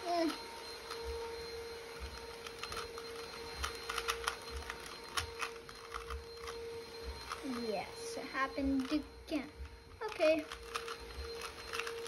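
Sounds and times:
faint hum: 0.0s - 12.0s
puzzle cube clicking: 2.4s - 6.6s, 10.4s - 12.0s.

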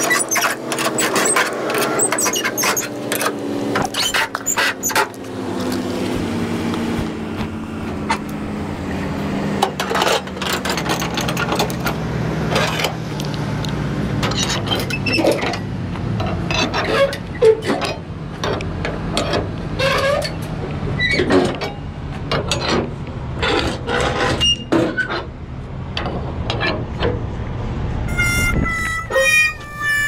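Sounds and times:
truck engine running: 0.0s - 30.0s
clicks and rattles: 9.6s - 25.3s.

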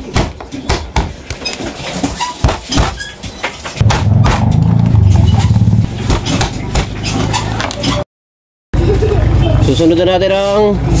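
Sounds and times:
loud low rumble: 3.8s - 6.1s.

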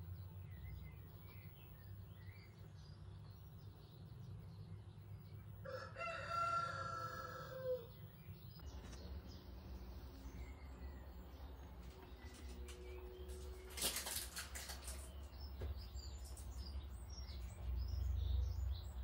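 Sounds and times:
rooster crowing: 5.6s - 7.9s.

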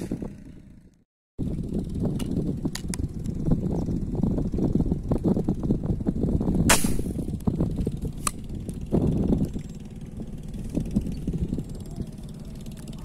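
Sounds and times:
wind rumble on microphone: 0.0s - 13.0s.

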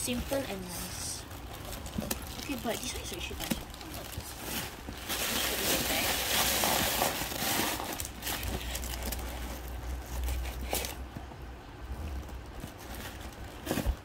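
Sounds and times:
plastic wrapping crinkling: 0.0s - 11.1s.

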